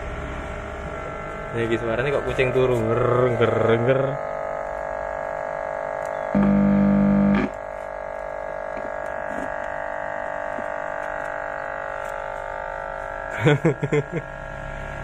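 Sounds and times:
deep loudspeaker buzz: 0.0 - 15.0
loudspeaker electrical hum: 0.0 - 15.0.

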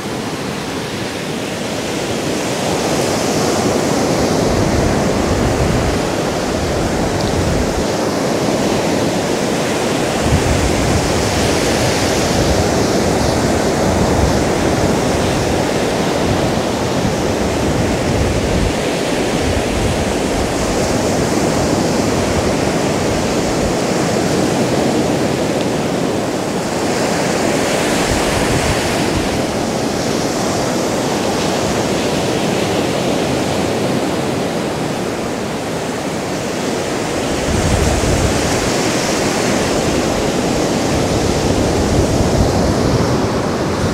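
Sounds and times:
surf breaking on a sandy beach: 0.0 - 43.9.

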